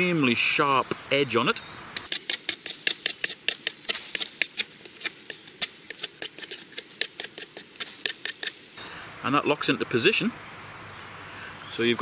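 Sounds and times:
knife whittling wooden stick: 0:02.0 - 0:08.7.

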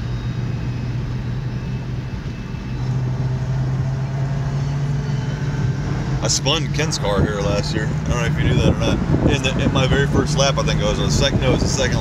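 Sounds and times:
car engine drone: 0:00.0 - 0:12.0
road and wind noise: 0:00.0 - 0:12.0.

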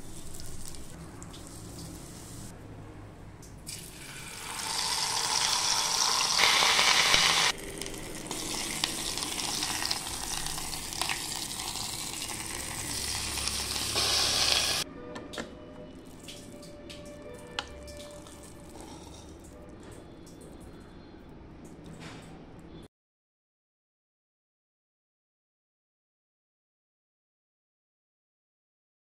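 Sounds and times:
pot hissing and sizzling: 0:03.7 - 0:14.8, 0:17.8 - 0:19.5.

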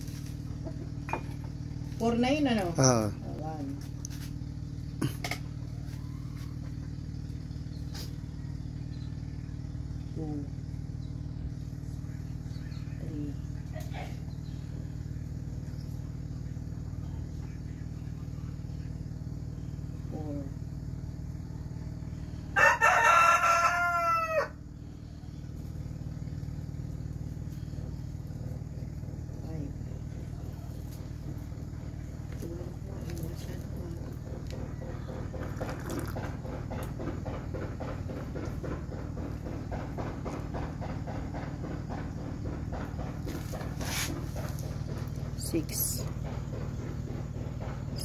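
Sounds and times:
steady low hum: 0:00.0 - 0:48.0
rooster crowing: 0:22.4 - 0:24.7.

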